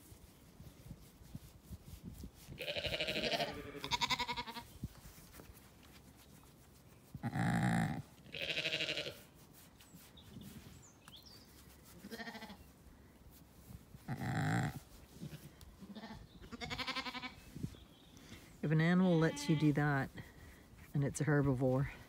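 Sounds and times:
sheep bleating: 0:02.6 - 0:04.6, 0:07.2 - 0:09.2, 0:12.1 - 0:12.6, 0:15.9 - 0:17.4.

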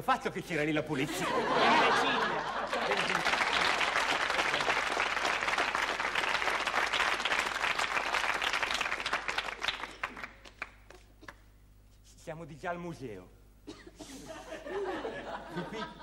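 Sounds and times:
audience applauding: 0:01.8 - 0:11.3.

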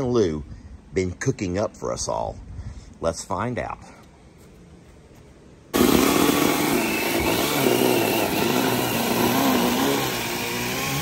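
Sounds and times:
power saw cutting cardboard: 0:05.8 - 0:11.0.

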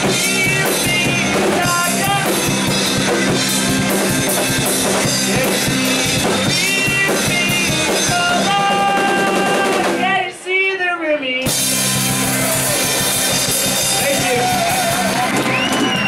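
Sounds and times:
person singing: 0:00.0 - 0:02.9, 0:04.7 - 0:12.7
electric guitar: 0:00.0 - 0:10.2, 0:11.4 - 0:16.0
bass guitar: 0:00.0 - 0:10.3, 0:11.4 - 0:16.0
drum kit: 0:00.0 - 0:10.4, 0:11.4 - 0:16.0.

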